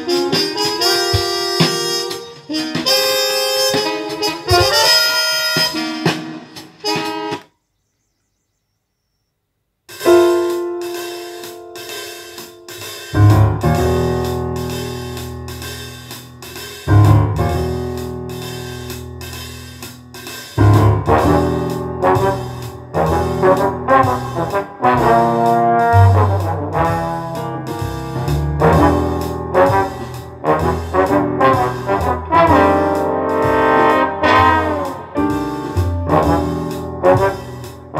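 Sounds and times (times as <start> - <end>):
music over loudspeakers: 0.0 - 7.4
bass line: 10.1 - 37.9.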